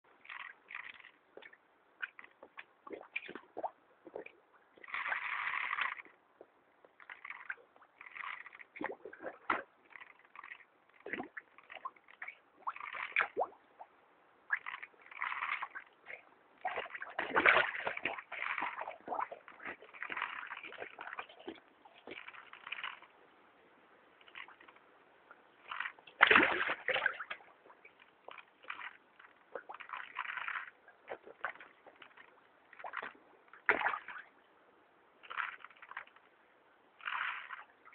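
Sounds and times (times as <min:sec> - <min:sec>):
fish sucking and slurping: 0:00.1 - 0:13.9, 0:14.5 - 0:23.2, 0:24.2 - 0:24.8, 0:25.4 - 0:34.3, 0:35.2 - 0:36.3, 0:37.0 - 0:37.9
water splash: 0:14.5 - 0:23.0, 0:25.7 - 0:32.2, 0:32.8 - 0:34.2.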